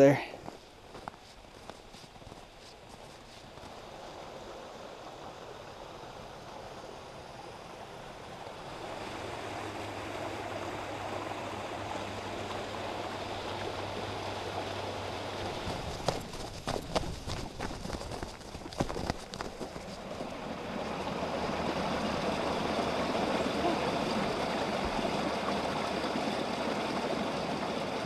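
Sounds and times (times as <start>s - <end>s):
footsteps crunching in snow: 0.4s - 3.8s, 15.8s - 20.2s
creek water rushing over rocks: 8.2s - 28.0s.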